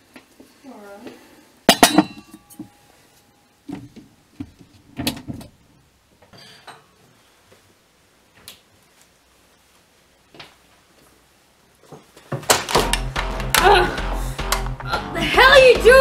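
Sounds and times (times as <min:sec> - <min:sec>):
objects knocking and clunking: 0:11.8 - 0:13.7.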